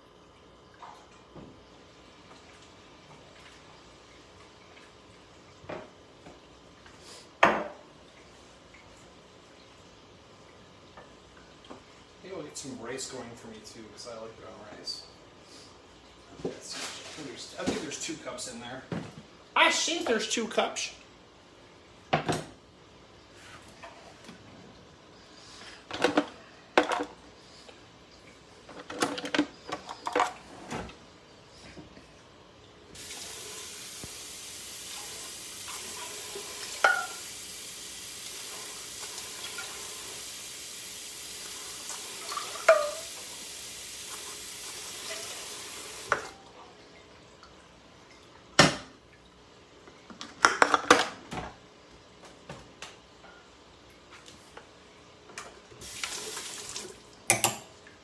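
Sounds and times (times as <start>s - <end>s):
kitchen tap running: 32.9s - 49.3s, 55.4s - 58.0s
pots and dishes clattering: 36.6s - 37.3s, 42.3s - 43.1s.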